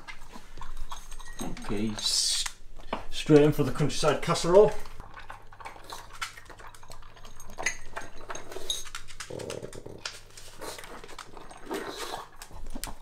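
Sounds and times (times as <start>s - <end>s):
dog crunching kibble: 0.0s - 13.0s
kibble clicking against bowl: 5.6s - 13.0s.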